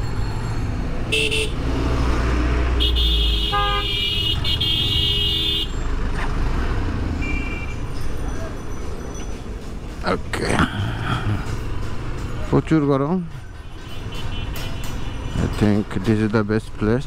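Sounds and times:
engine and traffic rumble: 0.0 - 17.0
vehicle horns honking: 1.1 - 1.6, 2.7 - 5.8, 7.2 - 7.9, 13.8 - 15.4.

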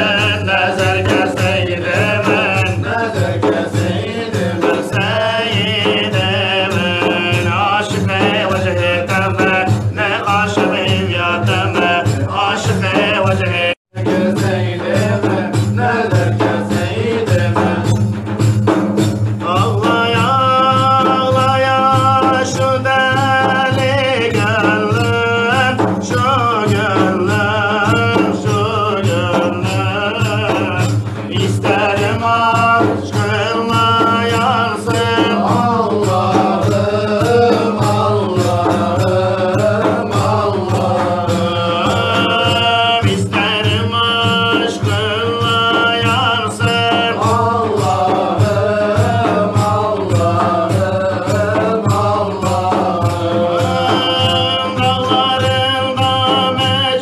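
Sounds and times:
men chanting a hymn: 0.0 - 18.6, 19.4 - 57.0
frame drum beats: 0.0 - 57.0.

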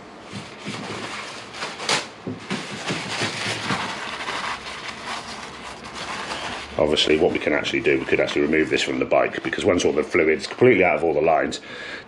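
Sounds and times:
paper towel rubbing in plastic reservoir: 2.6 - 11.4.

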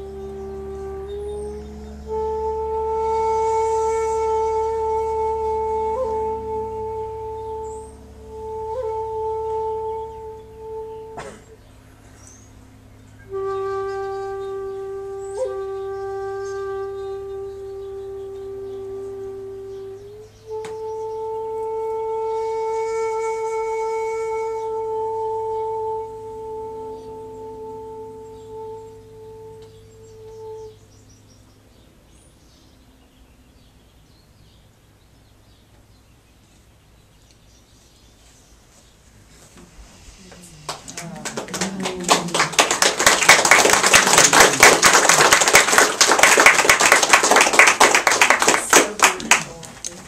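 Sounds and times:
end-blown flute long note: 0.0 - 31.8, 39.3 - 49.9
people applauding: 40.6 - 50.0.

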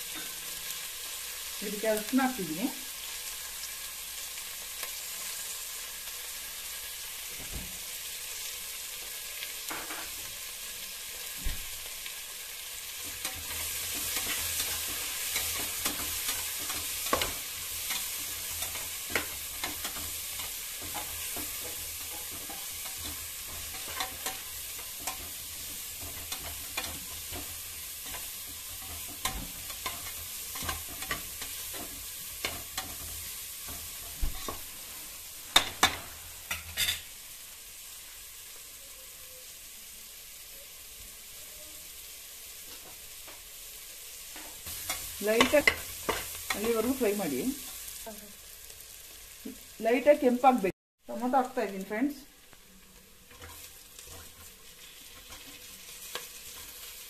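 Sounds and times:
onions sizzling in oil: 0.0 - 57.0
spatula scraping and knocking pot: 13.0 - 34.7.

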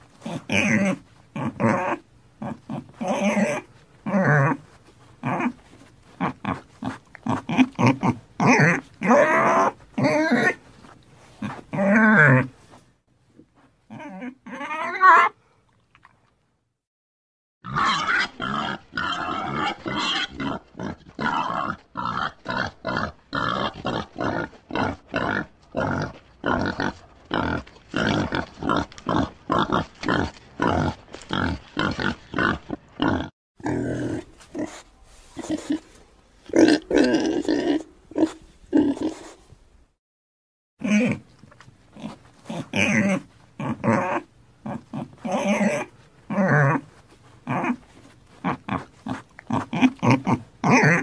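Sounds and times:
slow loud pig grunts: 0.2 - 5.6, 6.2 - 10.6, 17.6 - 34.8, 35.4 - 39.4, 42.0 - 47.8, 48.4 - 51.0
pig grunts and squeals: 0.2 - 12.6, 13.9 - 15.4, 17.6 - 34.8, 35.4 - 39.4, 40.8 - 51.0.

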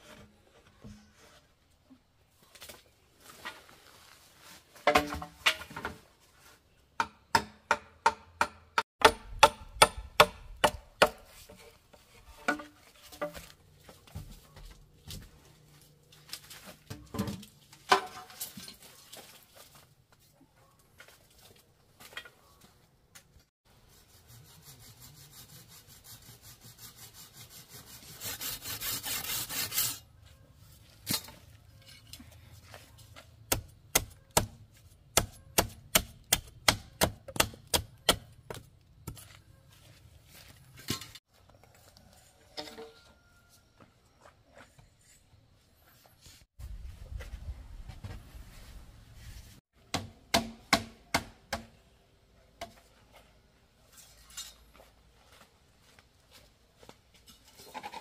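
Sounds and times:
blade scraping wood: 25.6 - 30.0
sharp chopping blows on wood: 33.5 - 38.3, 49.9 - 51.7.

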